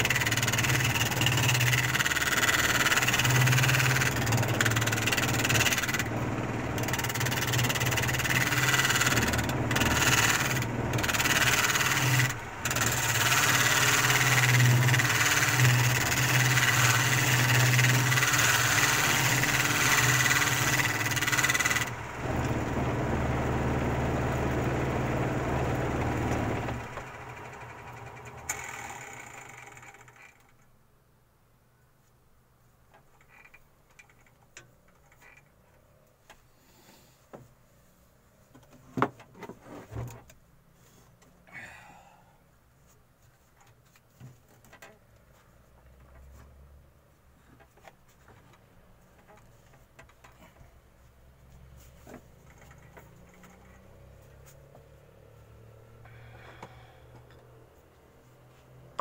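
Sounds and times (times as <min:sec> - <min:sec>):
power tool cutting wood: 0:00.0 - 0:30.1.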